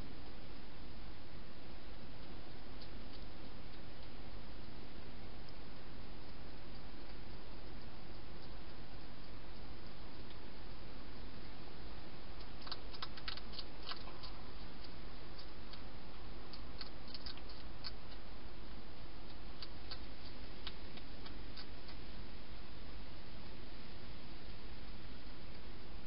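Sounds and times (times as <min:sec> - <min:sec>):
steady hiss: 0:00.0 - 0:26.0
hedgehog crunching dry food: 0:12.3 - 0:22.2.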